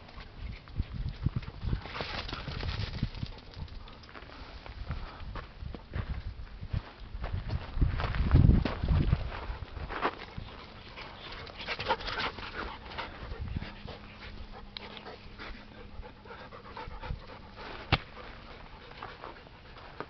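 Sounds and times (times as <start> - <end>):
scuffs and rustles on dirt: 0.2 - 15.8, 17.4 - 20.0
dog panting: 10.5 - 20.0.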